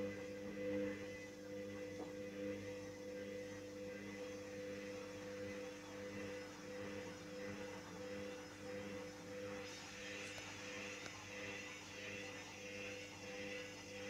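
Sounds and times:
washing machine spinning: 3.8s - 14.0s.

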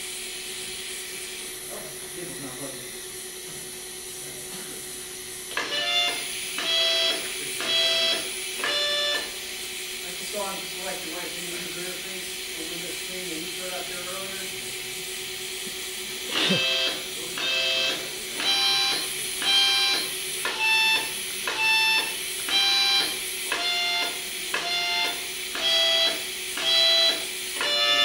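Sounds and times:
steady hum: 0.0s - 28.0s
harmonica playing slow tune: 16.3s - 28.0s.

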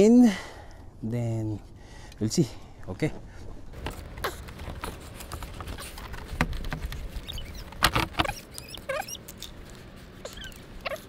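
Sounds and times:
wavering high squeaks: 7.0s - 11.0s.

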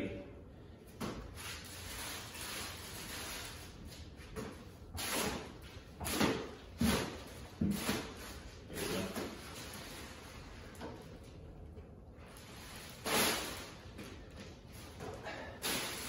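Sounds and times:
plastic wrapping rustling: 1.3s - 4.2s, 6.1s - 11.1s, 12.2s - 15.0s, 15.6s - 16.0s.

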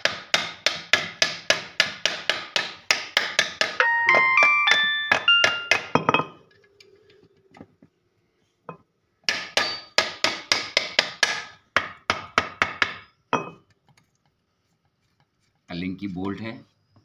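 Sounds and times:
hammer striking metal: 0.0s - 6.3s.

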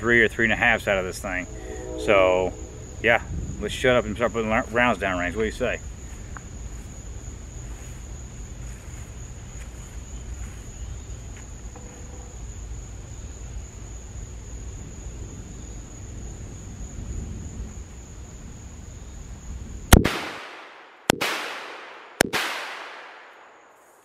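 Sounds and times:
low rumble: 0.0s - 6.0s
insects droning: 0.0s - 20.7s, 22.9s - 24.0s.

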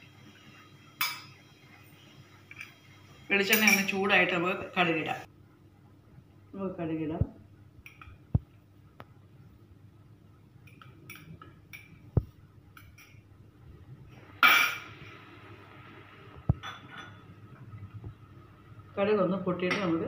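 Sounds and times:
spoon clinking containers: 3.5s - 4.0s.

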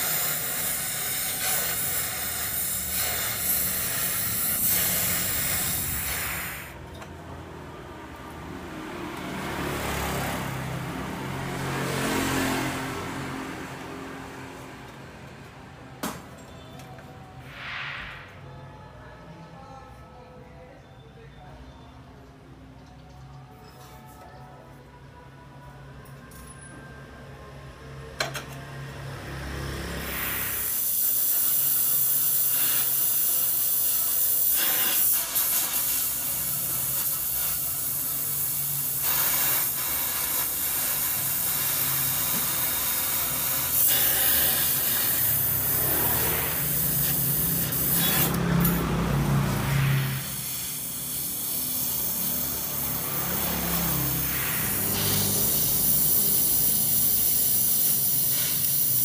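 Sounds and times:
welding arc sizzling: 0.0s - 6.8s, 30.0s - 59.0s.

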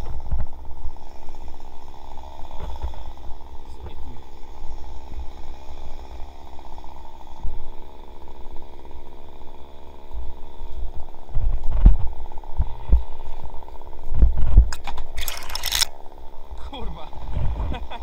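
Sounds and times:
chainsaw idling: 0.5s - 11.3s, 14.7s - 16.9s.

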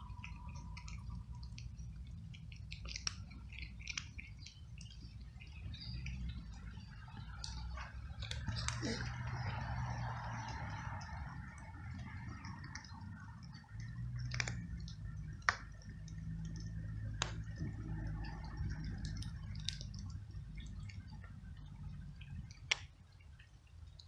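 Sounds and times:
cat crunching dry kibble: 0.0s - 23.0s
low steady rumble: 0.0s - 24.0s.

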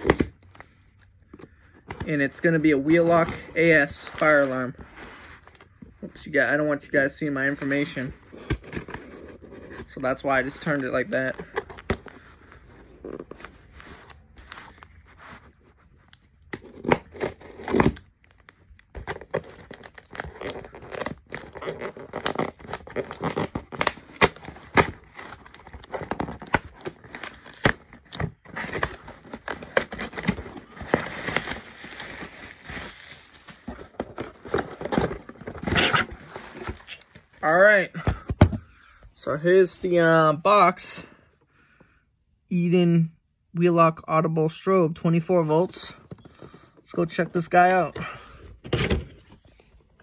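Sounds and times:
tape ripping and rustling: 12.9s - 37.2s
cardboard box tearing open: 16.5s - 18.1s, 19.0s - 37.0s.

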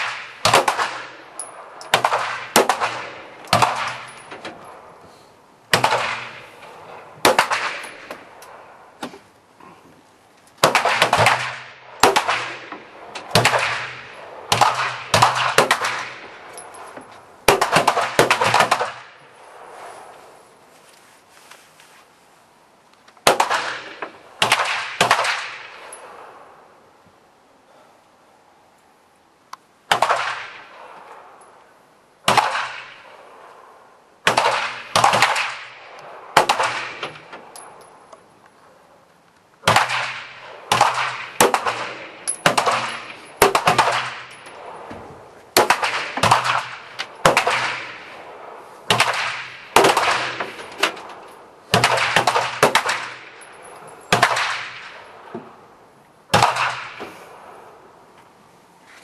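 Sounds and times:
pistol shots with echo: 0.0s - 4.8s, 5.7s - 8.6s, 10.6s - 16.8s, 17.4s - 19.2s, 23.2s - 26.4s, 29.9s - 31.3s, 32.2s - 33.3s, 34.2s - 37.8s, 39.6s - 44.9s, 45.5s - 51.0s, 51.7s - 55.3s, 56.3s - 57.6s.

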